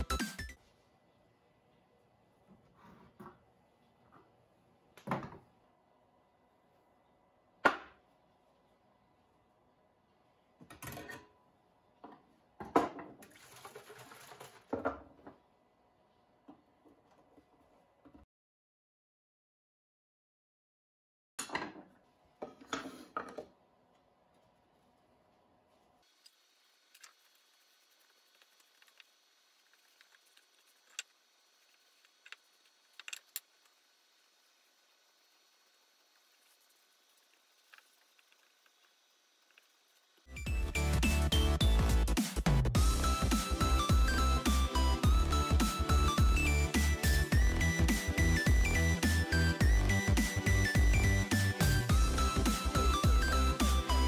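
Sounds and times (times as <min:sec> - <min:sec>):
small objects clicking and tapping: 0:29.7 - 0:33.8.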